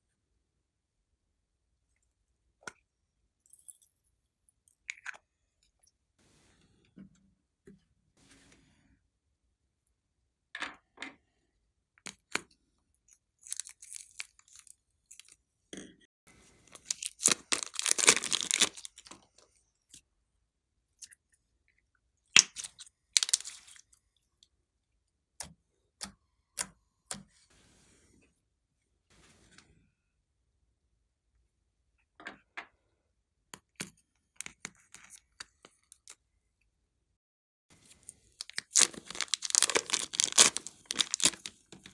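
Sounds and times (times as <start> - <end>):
crinkly plastic crackle: 16.6 - 19.2, 22.4 - 23.8, 37.8 - 41.9.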